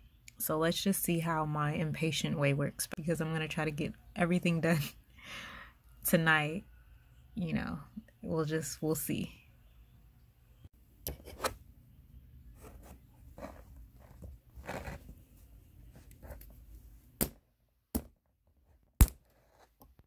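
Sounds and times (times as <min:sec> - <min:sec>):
rustling and scraping: 0:12.6 - 0:16.9, 0:19.2 - 0:19.8.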